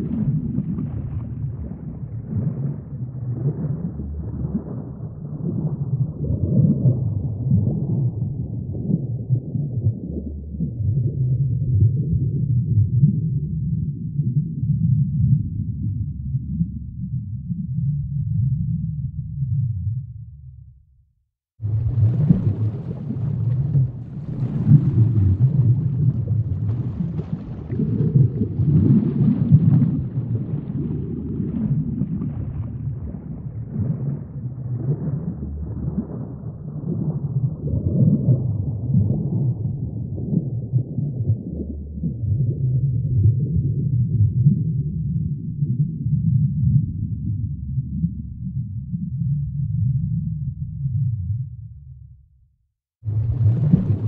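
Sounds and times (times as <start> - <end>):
faint crackle: 0.0 - 13.4, 21.6 - 43.4, 53.0 - 54.0
low muffled rumble: 0.0 - 20.8, 21.6 - 52.3, 53.1 - 54.0.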